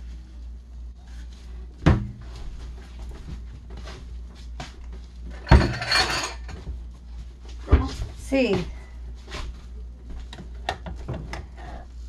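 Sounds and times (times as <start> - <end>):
steady low hum: 0.0 - 12.0
sharp kitchen knocks: 1.8 - 2.2.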